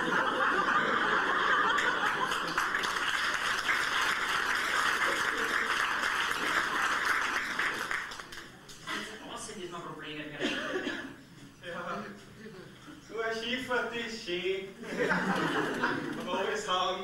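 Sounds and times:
audience applauding: 0:00.8 - 0:08.6.

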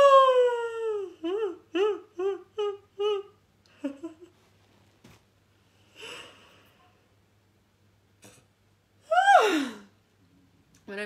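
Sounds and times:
woman whimpering: 0:00.0 - 0:04.2, 0:09.1 - 0:09.9
woman groaning: 0:09.1 - 0:09.9.

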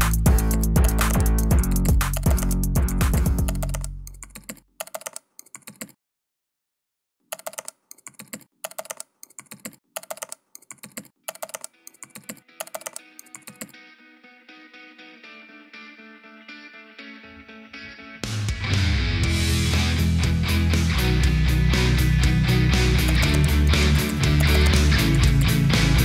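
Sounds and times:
background music: 0:00.0 - 0:04.0, 0:11.8 - 0:26.0
keyboard key clicks: 0:00.4 - 0:06.0, 0:07.3 - 0:13.7, 0:23.1 - 0:25.5
guitar music: 0:12.4 - 0:26.0.

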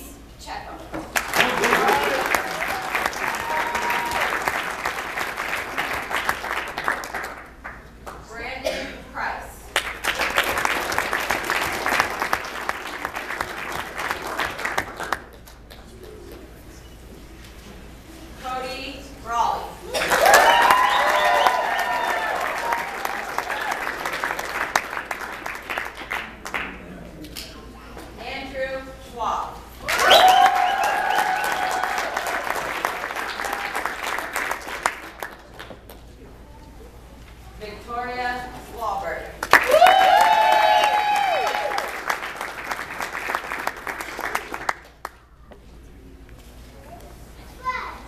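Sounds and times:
audience applauding: 0:01.1 - 0:07.9, 0:09.8 - 0:16.2, 0:19.9 - 0:26.9, 0:29.8 - 0:36.0, 0:39.4 - 0:45.2
person whooping: 0:01.5 - 0:04.4, 0:39.6 - 0:41.9.

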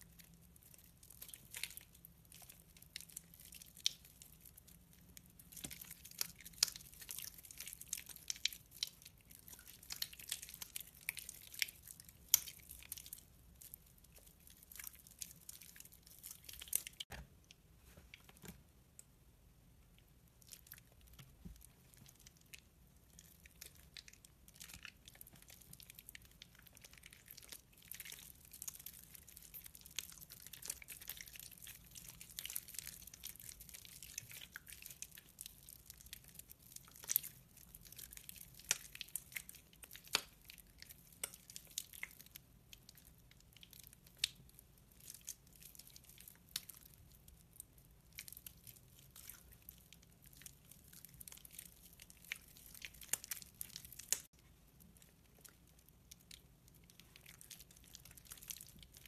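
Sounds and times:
wet soap squishing and crackling: 0:00.0 - 0:59.0
crunchy snaps: 0:52.2 - 0:54.3.

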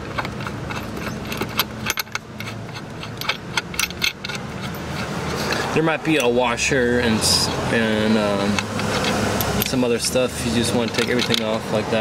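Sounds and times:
metal clicks and clinks: 0:00.0 - 0:06.4, 0:08.5 - 0:11.7.

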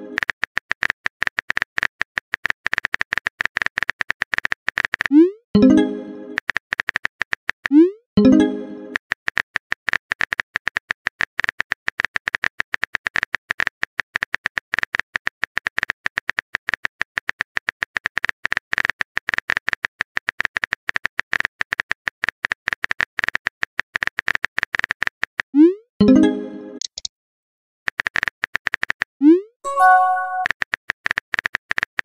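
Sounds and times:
keyboard typing clicks: 0:26.8 - 0:27.1.

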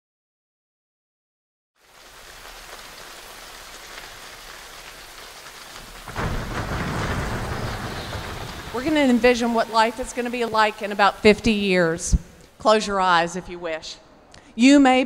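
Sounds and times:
steady rain falling: 0:01.8 - 0:12.8
deep rumble of thunder: 0:05.7 - 0:11.5.

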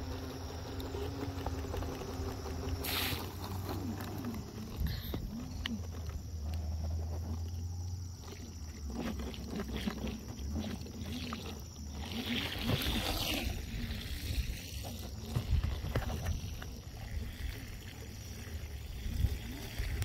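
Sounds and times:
hoverboard motor whine: 0:00.0 - 0:20.0
hissing rush: 0:02.8 - 0:03.5.

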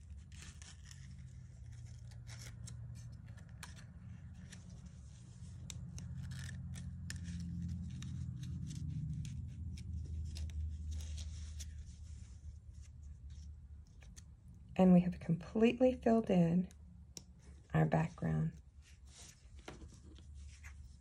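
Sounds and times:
paper rustling: 0:00.0 - 0:14.4, 0:18.7 - 0:21.0
low steady hum: 0:00.0 - 0:21.0.

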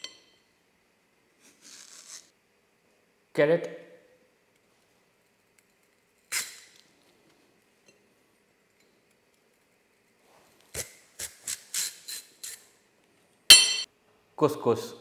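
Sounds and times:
peeler scraping a carrot: 0:01.4 - 0:02.3, 0:10.7 - 0:12.7.

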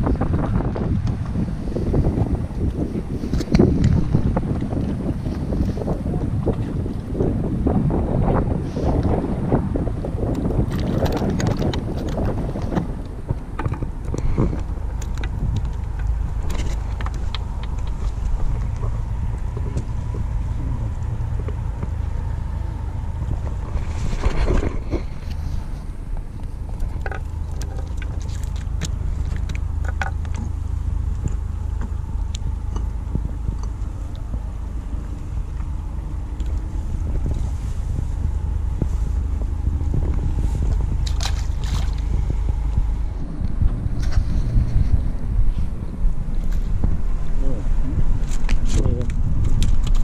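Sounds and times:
steady low rumble: 0:00.0 - 0:50.0.

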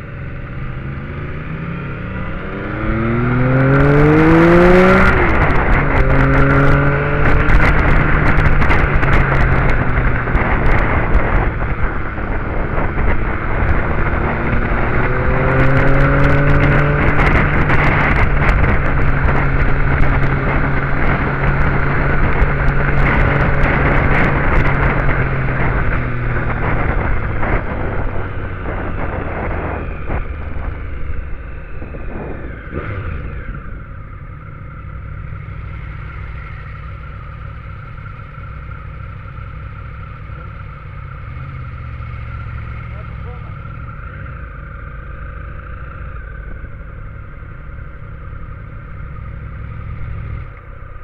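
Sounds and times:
wind rush on microphone: 0:00.0 - 0:36.3
motorcycle engine: 0:00.0 - 0:51.0.

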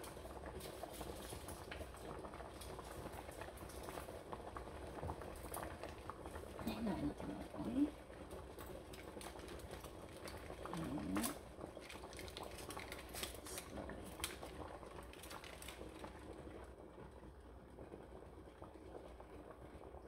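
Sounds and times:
water simmering in a pan: 0:00.0 - 0:20.0
foil crinkling: 0:08.9 - 0:16.4.

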